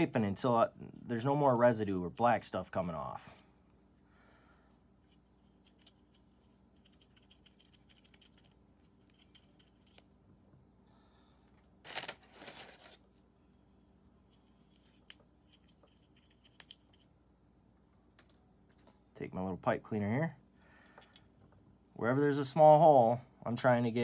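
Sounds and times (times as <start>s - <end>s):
cotton swab scratching in metal slide: 14.2s - 17.1s.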